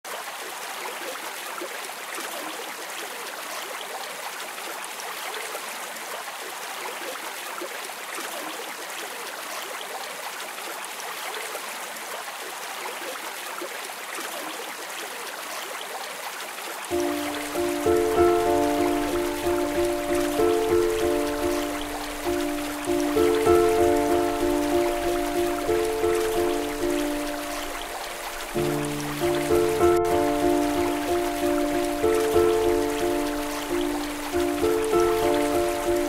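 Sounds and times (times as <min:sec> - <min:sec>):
water trickling: 0:16.9 - 0:36.0.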